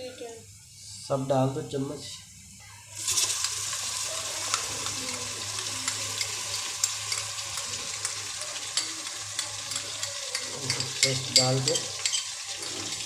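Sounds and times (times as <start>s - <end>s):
paste sizzling in hot oil: 1.2s - 13.0s
oil crackling and popping: 2.9s - 13.0s.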